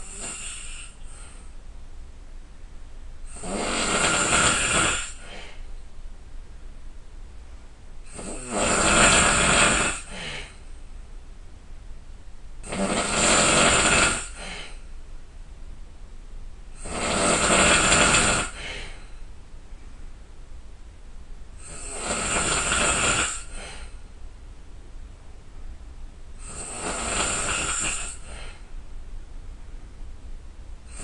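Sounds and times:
person snoring loudly: 0.0 - 1.4, 3.3 - 5.6, 8.1 - 10.6, 12.6 - 14.8, 16.8 - 19.0, 21.6 - 24.0, 26.4 - 28.6.

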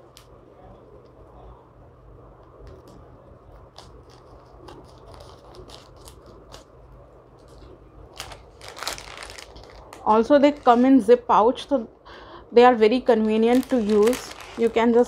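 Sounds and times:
low steady hum: 0.0 - 15.0
plastic pouch crinkling: 7.4 - 10.8, 13.0 - 15.0.

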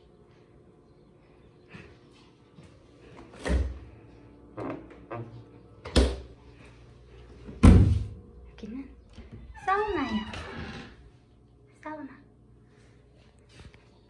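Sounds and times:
refrigerator door thuds: 7.6 - 8.1.

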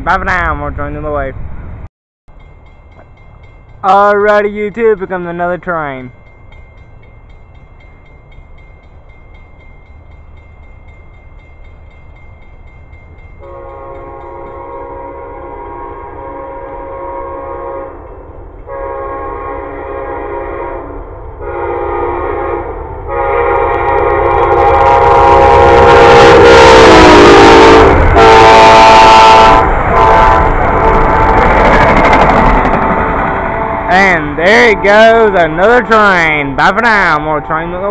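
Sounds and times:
train rumble: 0.0 - 37.9
locomotive air horn blasts: 13.4 - 18.1, 18.7 - 31.5, 33.0 - 34.0.

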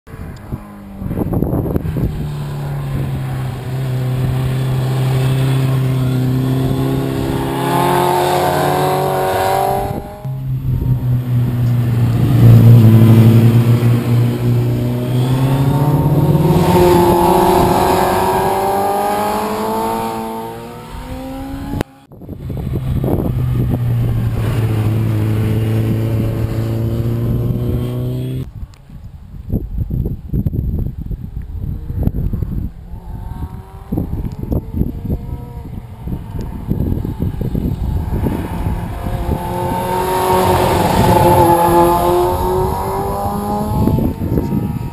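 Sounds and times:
motorcycle engines accelerating: 0.1 - 28.5, 31.0 - 44.9.

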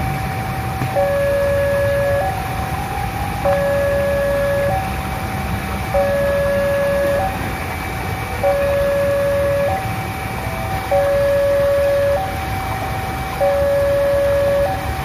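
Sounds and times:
level-crossing alarm two tones: 0.9 - 5.0, 5.9 - 7.4, 8.4 - 10.0, 10.6 - 15.0.

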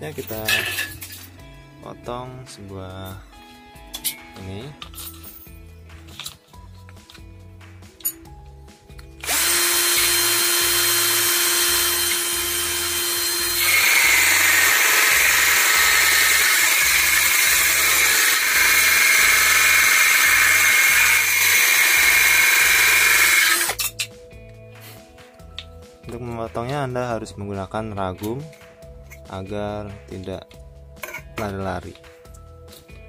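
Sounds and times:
disc cutting through strip: 9.2 - 23.8
drill spinning cutting disc: 9.2 - 23.8.

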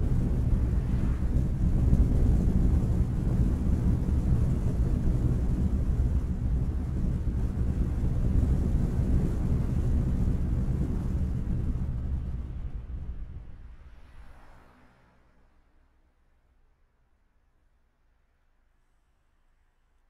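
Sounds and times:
wind buffeting microphone: 0.0 - 14.5
car road noise: 0.0 - 16.0.

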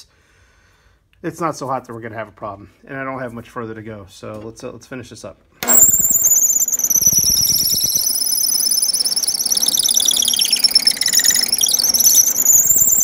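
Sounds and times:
drill bit squealing: 5.6 - 13.0.

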